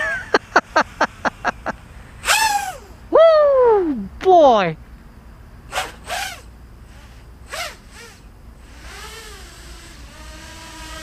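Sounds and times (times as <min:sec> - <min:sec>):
drone propellers whining: 0:00.0 - 0:04.2, 0:05.4 - 0:11.0
short rising-and-falling whoop: 0:02.2 - 0:04.0.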